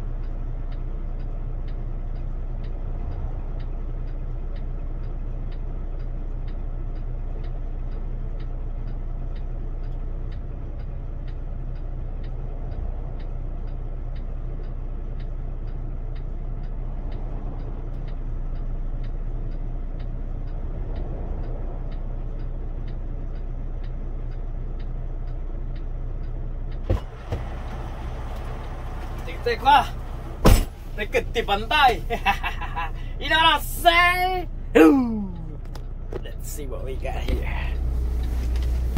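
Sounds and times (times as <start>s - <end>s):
diesel truck engine idling: 0.0s - 38.9s
regular ticking: 0.0s - 38.9s
sharp knock: 30.4s - 30.8s.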